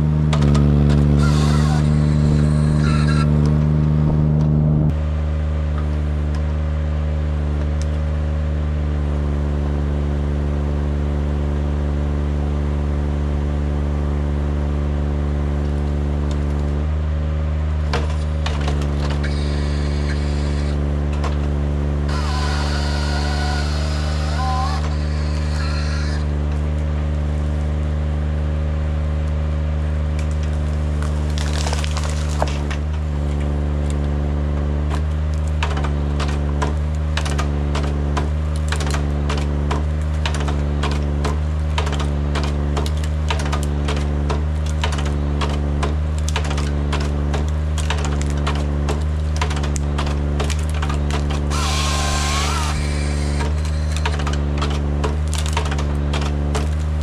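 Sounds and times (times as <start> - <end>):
forestry machine engine running: 0.0 - 57.0
branches cracking and snapping: 30.0 - 34.2, 34.8 - 57.0.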